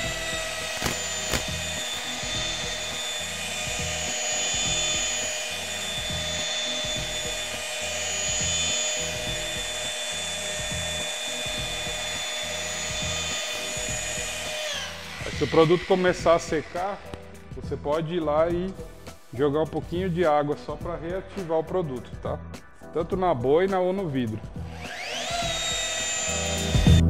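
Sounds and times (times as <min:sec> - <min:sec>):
polisher motor whine: 0:00.0 - 0:17.2, 0:24.7 - 0:27.0.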